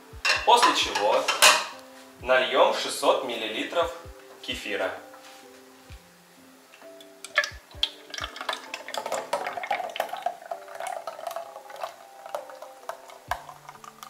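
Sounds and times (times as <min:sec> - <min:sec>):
thick liquid pouring and splashing: 0:07.3 - 0:14.0.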